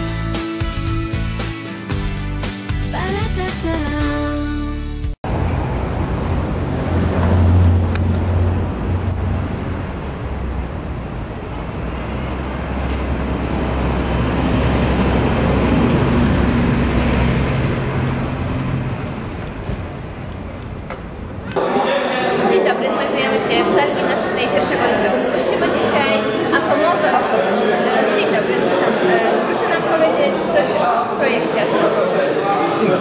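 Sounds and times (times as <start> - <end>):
vehicle engine humming: 5.2 - 21.6
traffic noise: 5.2 - 33.0.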